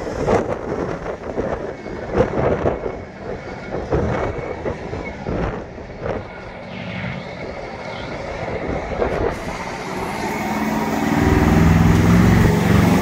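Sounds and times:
tractor diesel engine running: 0:02.8 - 0:13.0.

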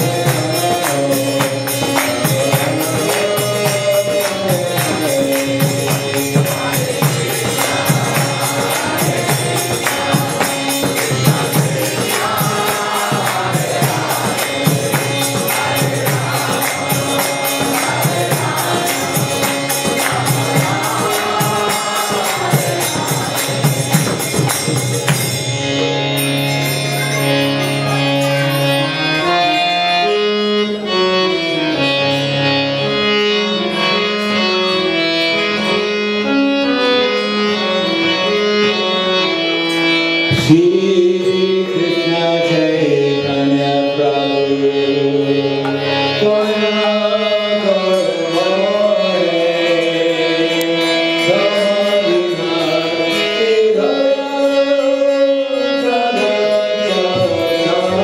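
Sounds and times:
man singing: 0:00.0 - 0:24.2, 0:40.3 - 0:58.0
metal hand percussion: 0:00.0 - 0:28.6
harmonium chords: 0:00.0 - 0:58.0.

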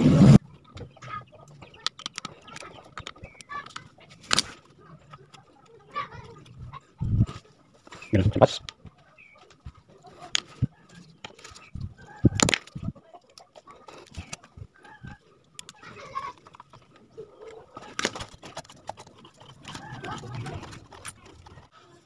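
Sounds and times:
plastic clicks and knocks: 0:01.6 - 0:04.5, 0:12.3 - 0:12.9.

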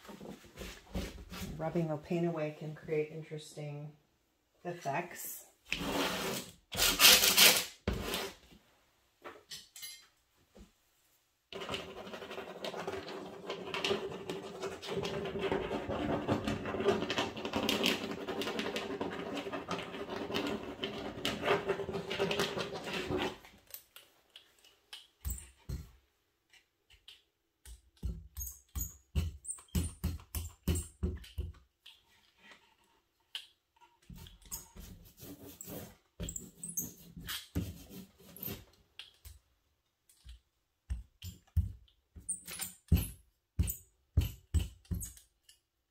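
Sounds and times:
paint brayer rolling on paper: 0:11.6 - 0:23.4.

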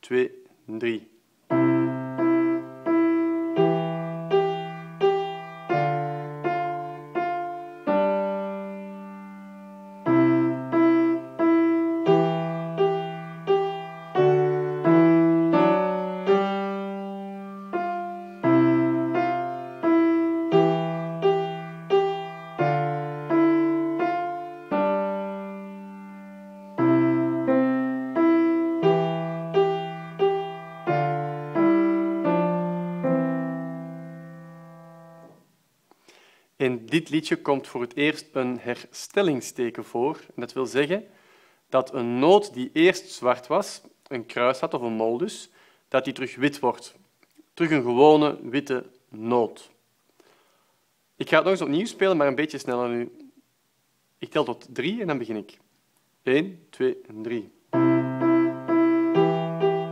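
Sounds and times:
piano melody: 0:01.5 - 0:35.5, 0:57.6 - 0:59.9.

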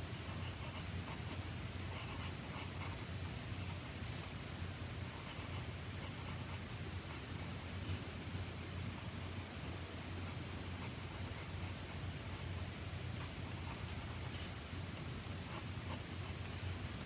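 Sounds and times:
faint low hum: 0:00.0 - 0:17.0
pencil scratching on paper: 0:00.2 - 0:03.8.

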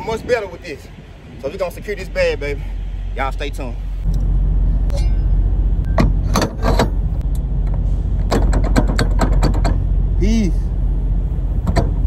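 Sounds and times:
engine hum: 0:00.0 - 0:12.0
metal lock clanking and clicking: 0:05.9 - 0:07.1, 0:08.3 - 0:09.8, 0:11.6 - 0:12.0.

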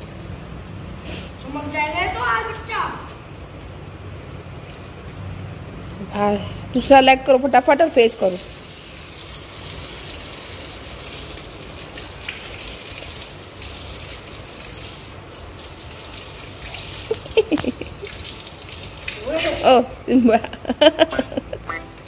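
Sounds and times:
hose water splashing on concrete: 0:07.1 - 0:19.9.

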